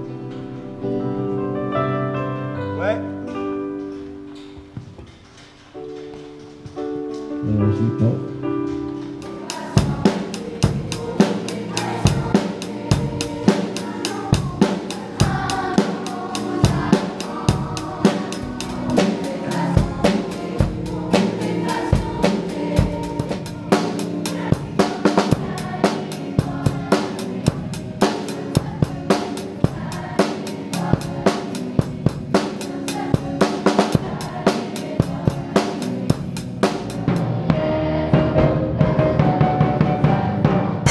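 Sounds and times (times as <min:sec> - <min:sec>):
children's choir singing: 0:08.8 - 0:40.9
rock band playing: 0:09.2 - 0:37.4.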